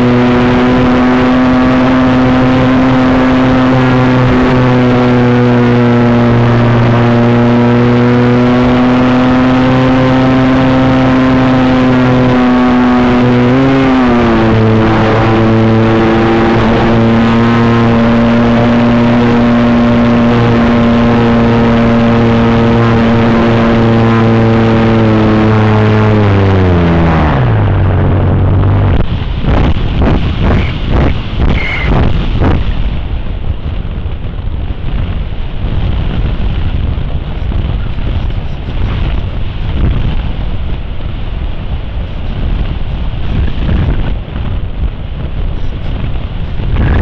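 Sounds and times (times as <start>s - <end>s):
model plane motor droning: 0.0s - 27.3s
air rush: 21.9s - 47.0s.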